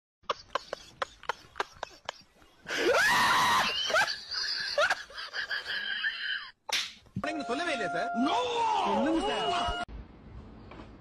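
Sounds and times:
loud scream: 2.8s - 3.8s.

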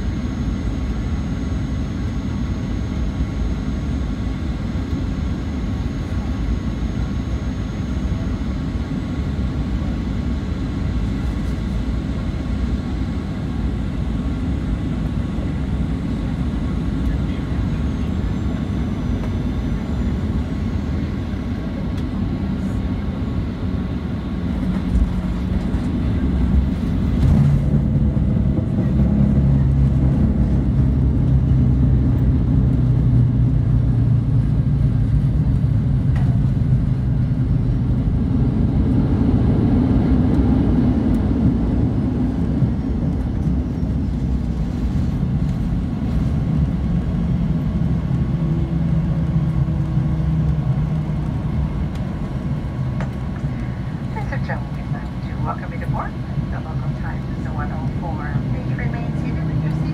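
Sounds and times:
airplane cabin engine rumble: 0.0s - 59.9s
low hum: 12.4s - 59.9s.

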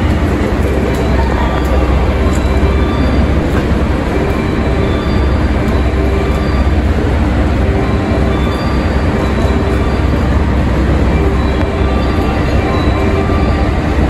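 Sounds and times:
electric train rail rumble: 0.0s - 14.0s
faint tones: 0.0s - 14.0s.

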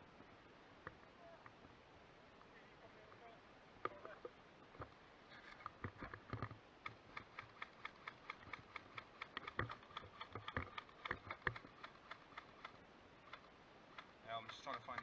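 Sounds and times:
rapid plastic clicking: 5.6s - 15.0s.

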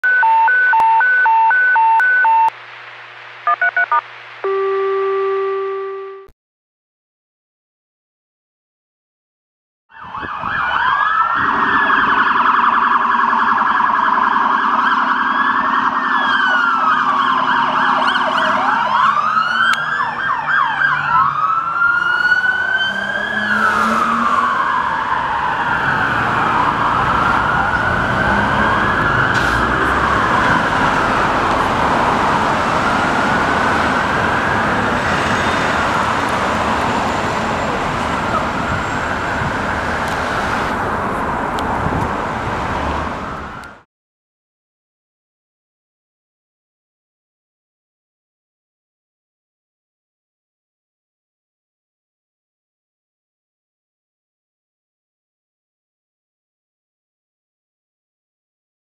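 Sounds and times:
police sirens wailing: 0.0s - 2.5s, 9.9s - 43.8s
city traffic noise: 0.0s - 6.3s, 9.9s - 43.8s.

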